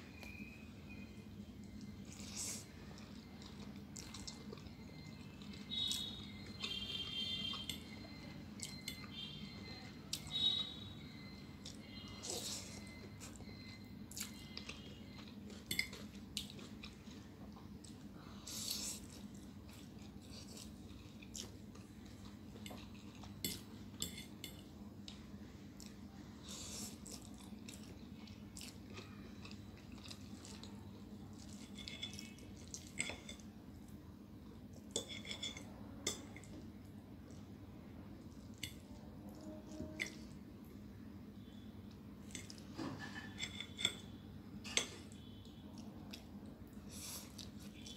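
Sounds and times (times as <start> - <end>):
low steady hum: 0.0 - 47.9
chewing and slurping noodles: 1.7 - 9.6, 10.2 - 24.4, 25.8 - 33.5
metal fork clinking on plate: 23.4 - 24.6, 34.9 - 36.4, 42.4 - 45.0.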